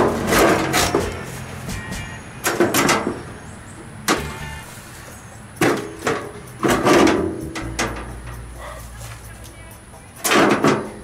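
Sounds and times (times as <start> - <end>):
metal panel clanking and scraping: 0.0 - 1.4, 2.4 - 3.2, 4.1 - 8.5, 10.2 - 11.0.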